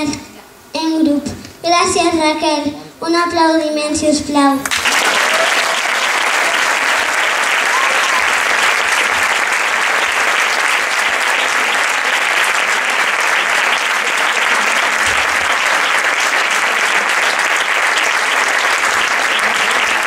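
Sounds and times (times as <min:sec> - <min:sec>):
audience applauding: 0:04.6 - 0:20.0.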